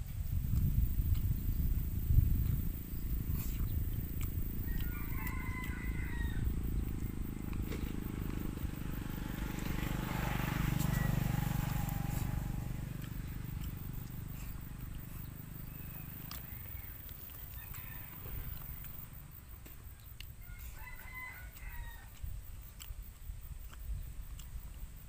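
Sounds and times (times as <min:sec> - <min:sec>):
low engine rumble: 0:00.0 - 0:20.8
rooster crowing: 0:04.6 - 0:13.0, 0:15.6 - 0:19.0, 0:20.4 - 0:22.2.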